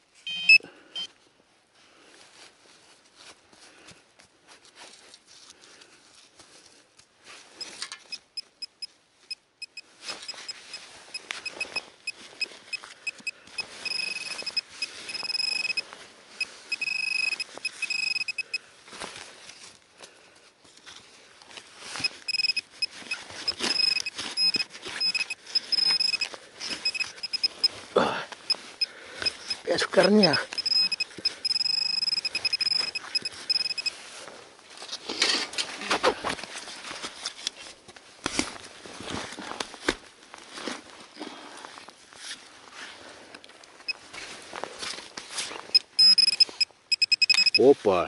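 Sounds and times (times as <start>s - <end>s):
pinpointer beeping: 0.2s - 1.1s, 7.6s - 15.8s, 16.4s - 18.6s, 22.0s - 27.8s, 28.5s - 33.9s, 45.7s - 47.7s
soil and roots crunching: 9.9s - 48.0s.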